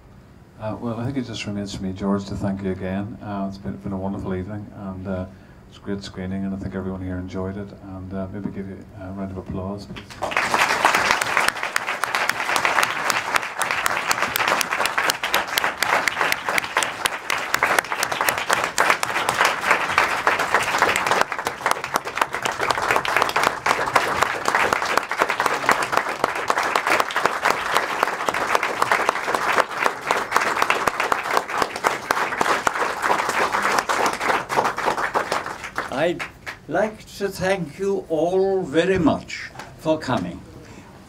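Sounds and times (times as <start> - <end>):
audience applauding: 10.0 - 36.7.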